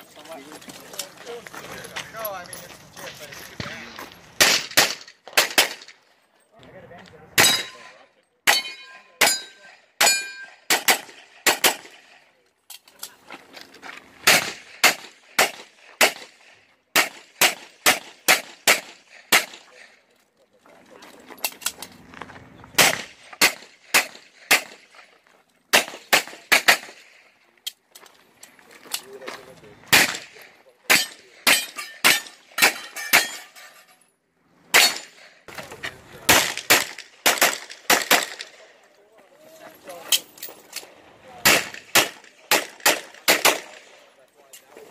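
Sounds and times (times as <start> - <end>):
steel targets ringing: 7.4 - 10.6
rapid pistol fire: 10.7 - 11.9, 14.2 - 16.4, 25.7 - 27.0, 36.3 - 38.5, 41.4 - 43.9
handgun shots: 41.4 - 43.8.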